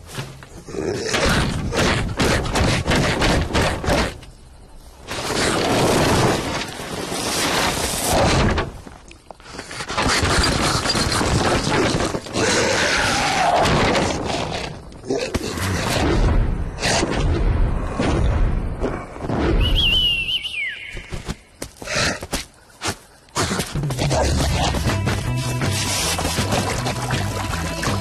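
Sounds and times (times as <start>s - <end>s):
descending cartoon whistle: 19.6s - 21.1s.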